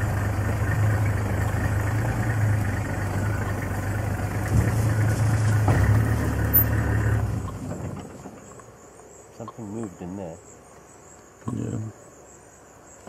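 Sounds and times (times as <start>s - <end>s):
vehicle engine running: 0.0s - 8.6s
high insect trill: 0.2s - 13.0s.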